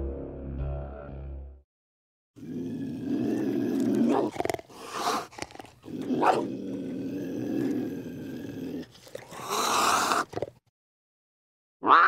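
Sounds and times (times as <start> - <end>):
cougar growling: 2.4 - 10.6
cougar snarling: 2.4 - 10.6.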